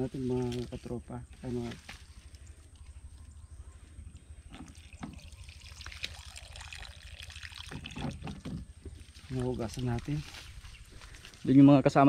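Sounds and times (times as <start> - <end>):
water pouring and trickling: 4.5 - 10.6.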